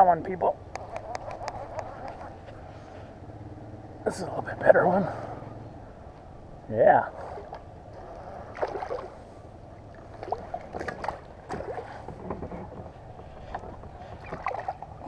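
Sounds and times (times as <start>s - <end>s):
fishing gear clicking and knocking: 0.6s - 2.4s, 10.7s - 15.0s
water gurgling and splashing: 7.2s - 12.0s, 14.2s - 15.0s.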